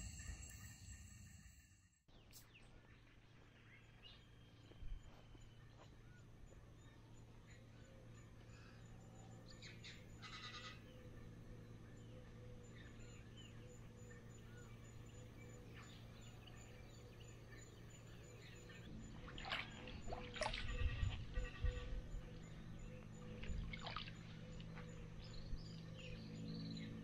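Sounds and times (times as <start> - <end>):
faint bird calls: 5.3 - 18.9
hands splashing water: 19.3 - 20.7.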